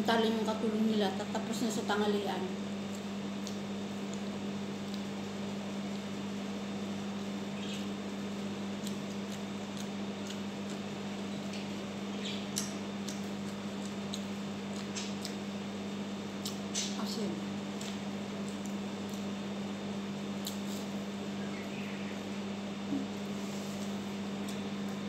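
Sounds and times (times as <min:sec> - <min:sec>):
steady low hum: 0:00.0 - 0:25.0
chewing and lip-smacking: 0:02.8 - 0:15.6, 0:16.2 - 0:17.0, 0:17.7 - 0:19.4, 0:20.3 - 0:21.0.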